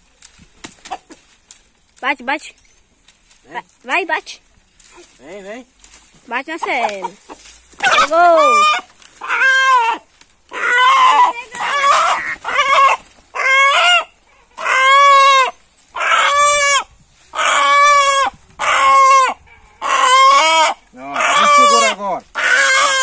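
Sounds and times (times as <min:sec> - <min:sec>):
rooster squawking: 0:06.6 - 0:23.0.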